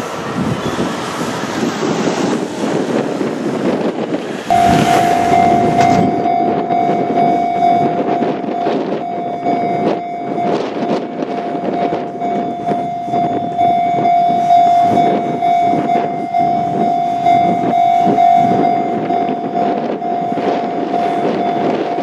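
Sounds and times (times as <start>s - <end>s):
rough rushing noise: 0.0s - 22.0s
level crossing warning bell: 4.5s - 22.0s.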